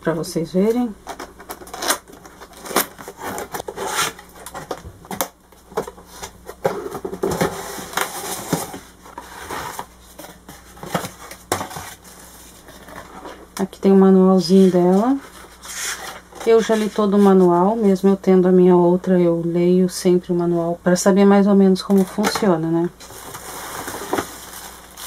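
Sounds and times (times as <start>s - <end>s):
cardboard scraping and rustling: 1.4s - 13.5s, 14.4s - 17.8s, 22.0s - 25.0s.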